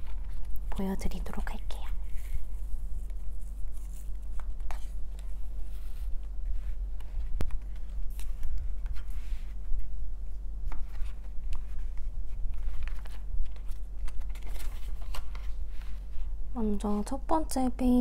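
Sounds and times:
paper pages rustling: 0.0s - 0.8s, 2.0s - 16.4s
steady low hum: 0.0s - 18.0s.

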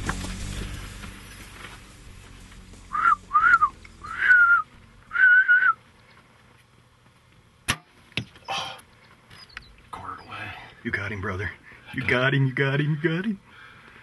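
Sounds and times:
short whistles rising and falling: 2.9s - 5.8s.

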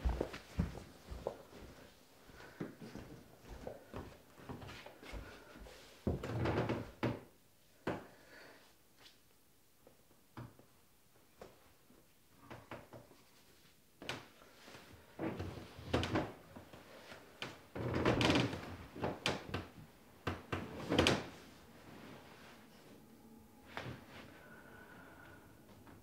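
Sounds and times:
wooden sofa creaking and rustling: 6.1s - 7.2s, 15.0s - 22.6s.

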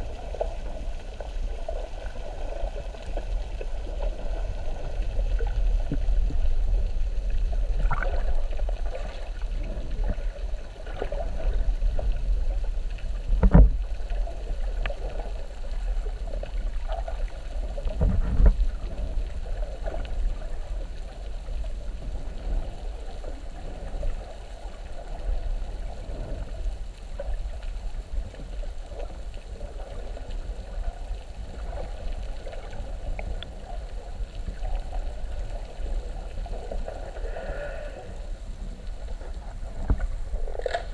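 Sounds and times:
underwater rumble of moving water: 0.0s - 40.9s
dull underwater thump: 13.4s - 13.8s.

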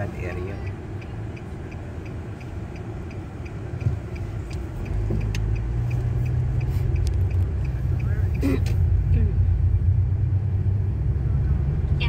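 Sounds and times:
car road noise rumble: 0.0s - 12.0s
faint regular ticking: 0.6s - 8.8s.

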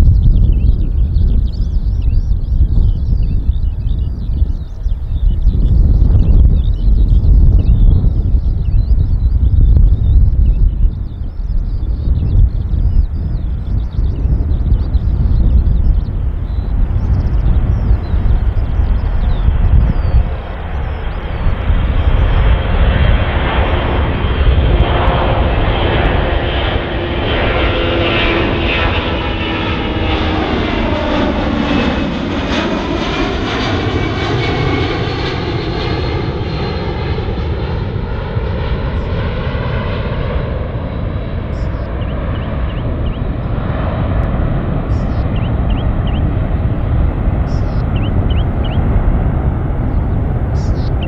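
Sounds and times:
jet aircraft flying past: 0.0s - 51.0s.

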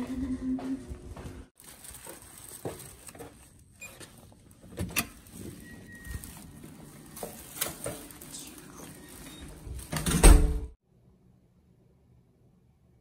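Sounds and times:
faint footsteps: 0.0s - 10.0s.

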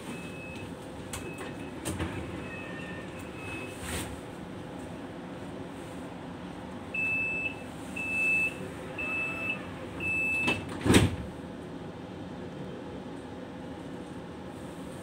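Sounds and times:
high warning beeps: 7.0s - 10.6s
sliding doors shutting thud: 10.4s - 11.3s.

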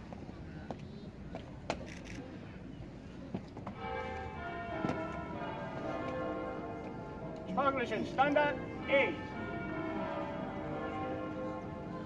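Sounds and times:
church bells ringing: 3.8s - 12.0s.

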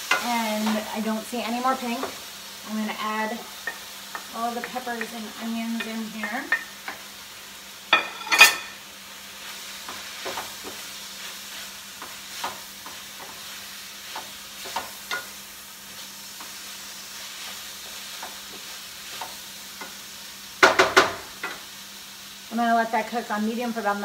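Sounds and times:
food sizzling in a frying pan: 0.0s - 24.0s
wooden spoon scraping a pan: 9.4s - 20.1s.

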